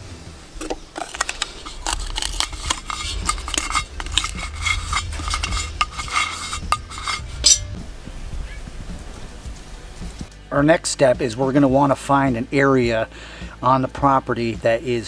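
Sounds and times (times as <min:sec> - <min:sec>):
knocks and scrapes on clay pot: 0:01.0 - 0:07.8.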